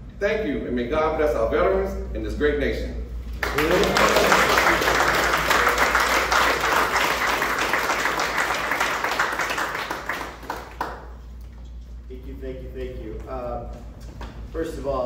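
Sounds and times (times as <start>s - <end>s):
audience applauding: 3.4s - 11.2s.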